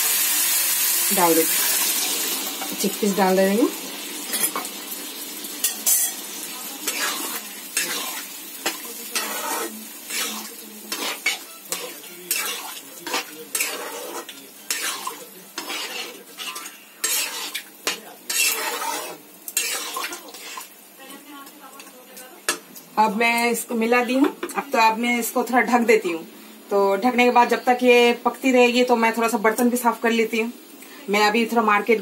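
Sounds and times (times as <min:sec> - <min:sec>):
curry sizzling: 0:00.0 - 0:32.0
spatula scraping a pan: 0:05.6 - 0:06.2, 0:06.8 - 0:20.8.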